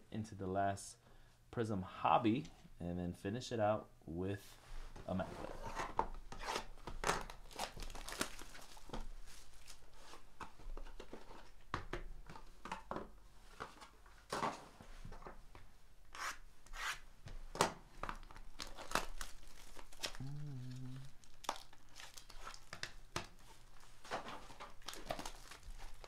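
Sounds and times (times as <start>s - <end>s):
cards rubbing and sliding: 16.1s - 17.0s.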